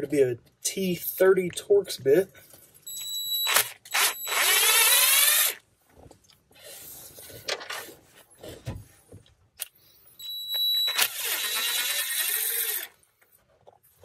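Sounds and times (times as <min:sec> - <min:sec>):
power driver spinning: 0:03.0 - 0:05.6, 0:10.3 - 0:13.0.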